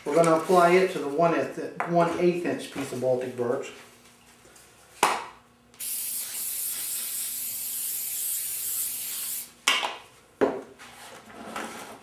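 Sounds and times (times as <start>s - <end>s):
aerosol can hissing: 5.8s - 9.5s.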